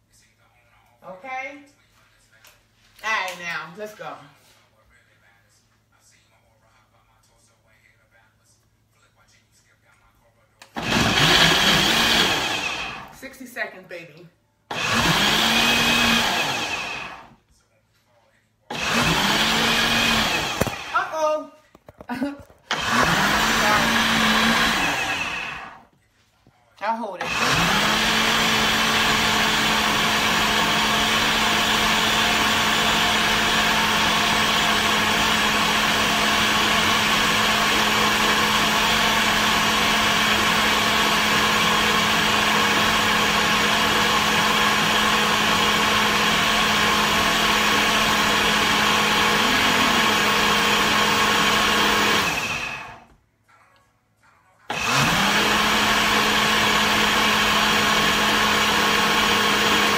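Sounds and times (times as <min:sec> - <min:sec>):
blender running: 0:10.7 - 0:13.2, 0:14.7 - 0:17.4, 0:18.7 - 0:21.4, 0:22.7 - 0:25.9, 0:27.2 - 0:53.1, 0:54.7 - 0:59.9.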